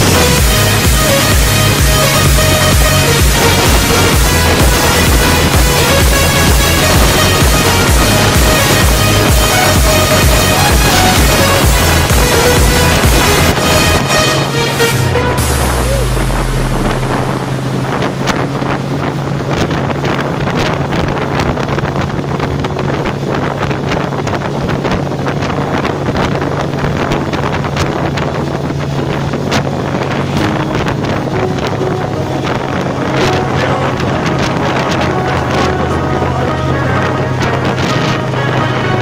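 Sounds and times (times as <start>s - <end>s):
outboard motor running: 0.0s - 39.0s
wind buffeting microphone: 0.0s - 39.0s.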